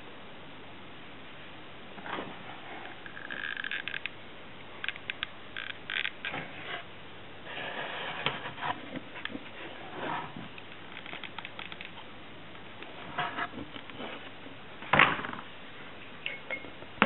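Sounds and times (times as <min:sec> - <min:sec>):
rustling and scraping of materials: 0:02.0 - 0:04.1, 0:04.9 - 0:12.1, 0:12.8 - 0:15.6.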